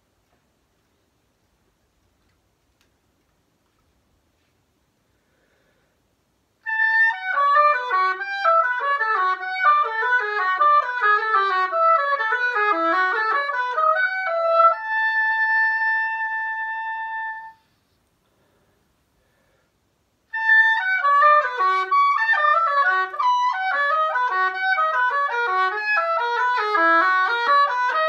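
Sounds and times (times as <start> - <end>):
solo oboe playing: 6.6 - 17.8, 20.3 - 28.0.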